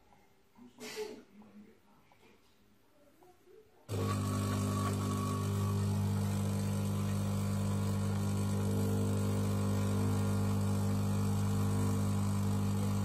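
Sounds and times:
espresso machine pump humming: 3.9s - 13.0s.

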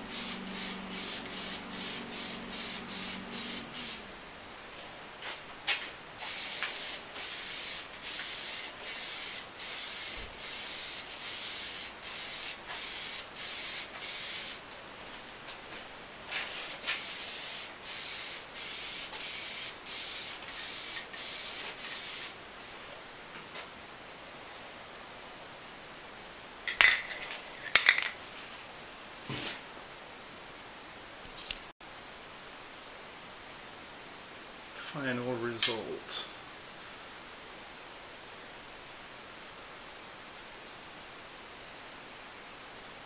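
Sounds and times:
aerosol can spraying hissing bursts: 0.0s - 4.1s, 6.2s - 14.6s, 16.7s - 22.4s.

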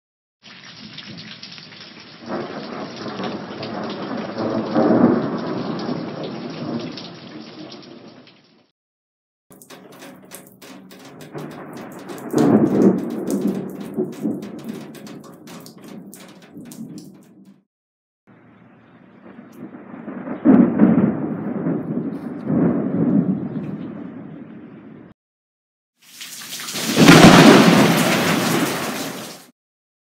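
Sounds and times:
rain falling: 0.5s - 8.4s, 9.5s - 17.6s, 26.1s - 29.5s
sharp taps: 9.5s - 17.6s
thunder rumbling: 9.5s - 17.6s, 19.2s - 24.7s, 26.9s - 29.1s.

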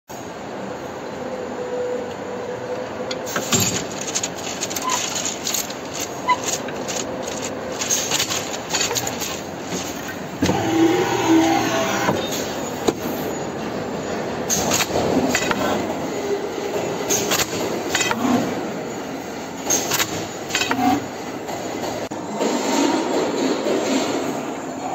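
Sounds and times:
machine humming with clicks and knocks: 2.1s - 24.6s
loud whirring with buzzing tone: 3.4s - 13.1s.

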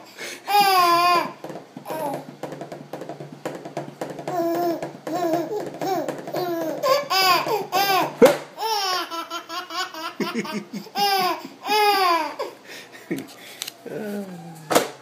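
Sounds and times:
baby laughing: 0.4s - 2.3s, 4.3s - 12.6s
hand slapping table: 0.6s - 7.0s, 8.2s - 8.5s.

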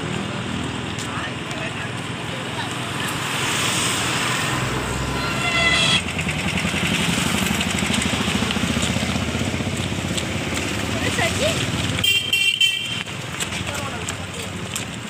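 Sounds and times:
road traffic noise: 0.0s - 15.0s
vehicle horn: 5.1s - 6.1s, 12.0s - 13.1s.

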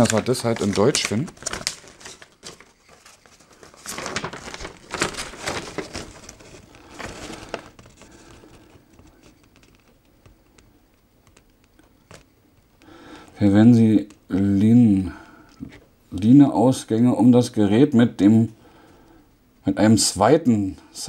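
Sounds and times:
paper crinkling and rustling: 0.0s - 15.8s.

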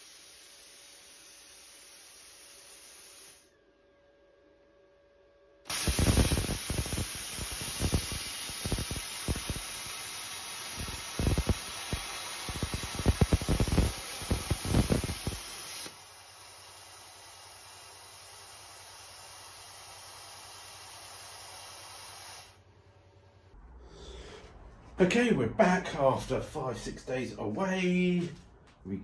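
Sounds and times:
plasma cutter hissing and popping: 0.0s - 3.5s, 5.7s - 22.6s.

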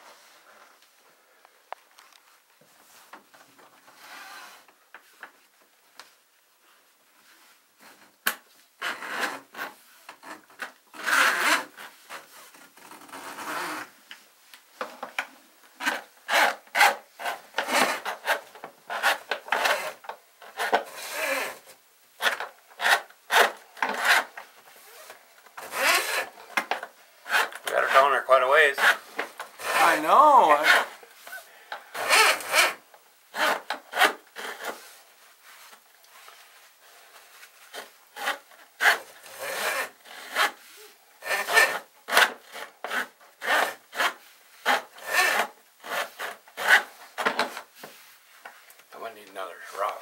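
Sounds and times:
metal cable scraping through rag: 15.8s - 26.4s, 27.2s - 47.0s.

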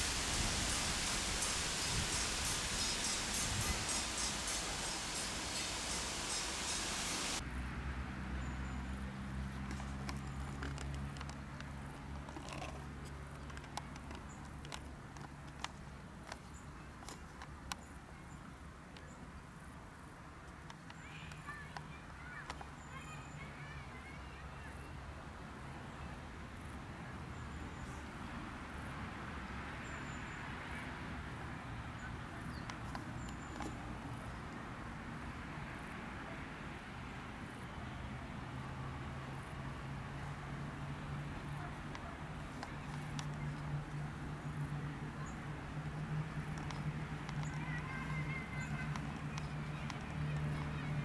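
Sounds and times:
dense hiss: 0.0s - 7.4s
faint high chirps: 0.0s - 7.4s
small clicks: 46.3s - 51.0s.

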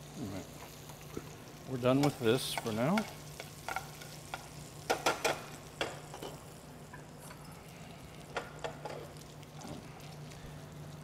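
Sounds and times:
bacon sizzling in a pan: 0.0s - 11.0s
metal tongs clicking on pan: 1.9s - 6.4s.

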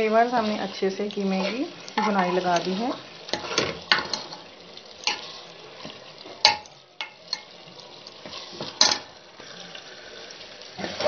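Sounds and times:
meat sizzling in oil: 0.0s - 11.0s
spoon scraping a steel pot: 1.1s - 5.5s.

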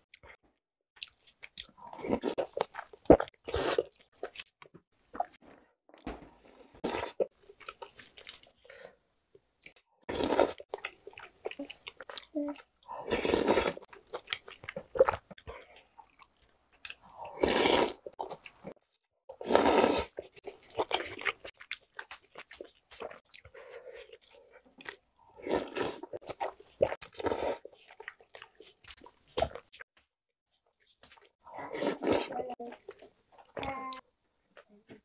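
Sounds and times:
wet chewing: 1.0s - 5.4s, 6.6s - 8.6s, 9.6s - 33.5s
slurping noodles: 10.1s - 12.0s, 12.9s - 15.6s, 17.0s - 18.7s, 19.3s - 21.5s, 24.0s - 29.7s, 31.4s - 32.9s.

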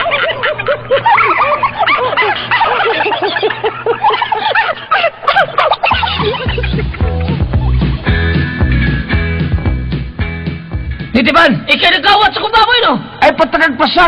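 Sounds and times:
man laughing hard: 0.0s - 8.5s
music: 5.9s - 12.7s.

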